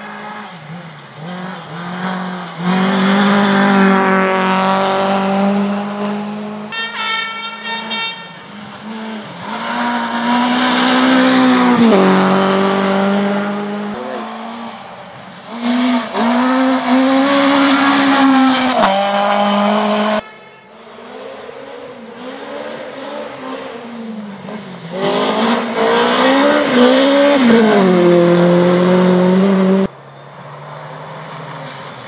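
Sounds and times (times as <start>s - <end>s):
rally cars passing at full throttle: 0.0s - 32.0s.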